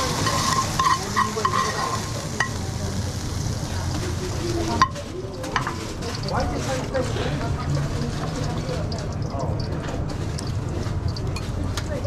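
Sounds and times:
food sizzling in a pan: 0.0 - 11.6.

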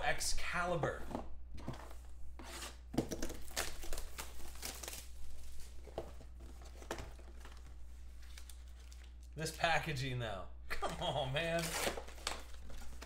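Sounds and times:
plastic wrap crinkling and tearing: 3.1 - 5.8, 11.4 - 13.0.

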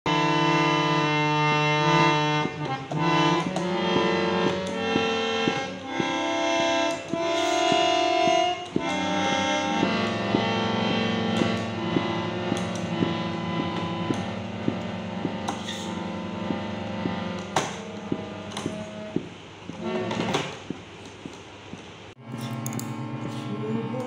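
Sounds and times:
harmonium reed clusters: 0.1 - 21.0.

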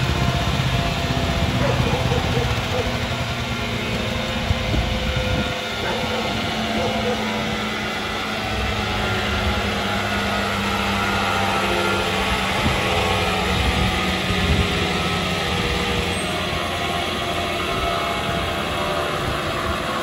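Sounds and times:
chipper engine running: 0.0 - 20.0.

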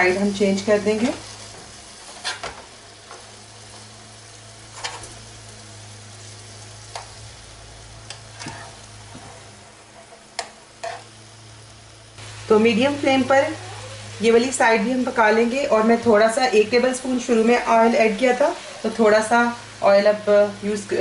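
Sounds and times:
meat sizzling in a frying pan: 0.0 - 21.0
spatula tapping and scraping pan: 10.0 - 11.1.

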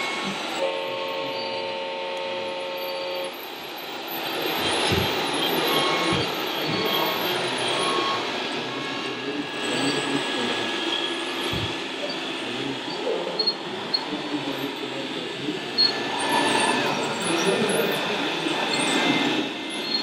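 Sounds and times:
busy hall din: 0.0 - 20.0.

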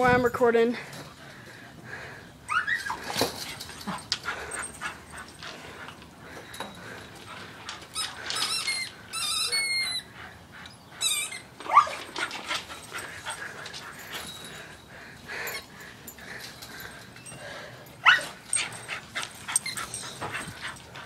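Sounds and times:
dog yelping: 2.5 - 3.2, 7.9 - 10.2, 11.0 - 12.3, 18.0 - 18.7
dog whining and squealing: 2.5 - 4.0, 7.7 - 13.4, 18.0 - 20.8.

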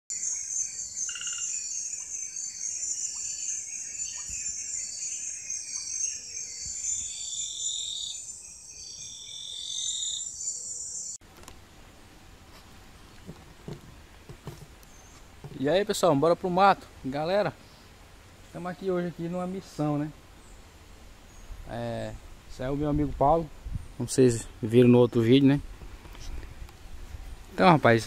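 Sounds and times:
insects trilling: 0.1 - 11.2.

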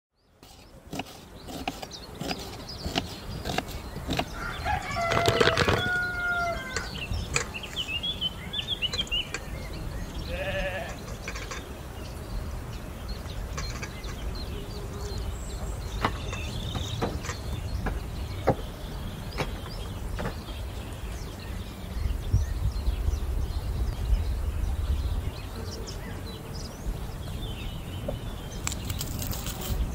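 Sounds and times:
bird chirps: 0.2 - 29.9
wavering bleat: 10.2 - 11.0.

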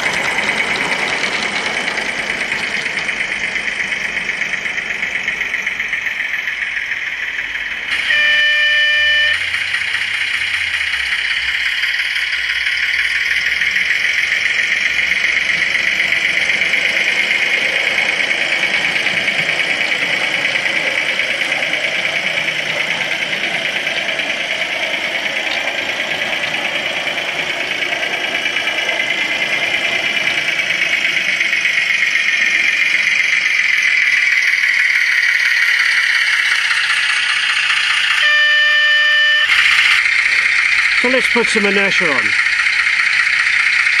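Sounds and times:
model locomotive diesel engine sound: 0.0 - 44.0
horn blast: 7.9 - 9.5, 38.2 - 39.6.

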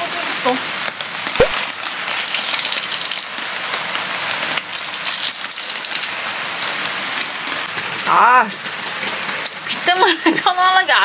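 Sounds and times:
steady rain: 0.0 - 11.0
water gushing off tarp: 1.2 - 9.9.

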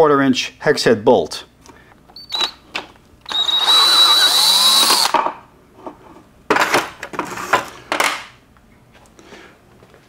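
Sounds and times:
power driver whirring: 2.2 - 2.6, 3.2 - 5.2.

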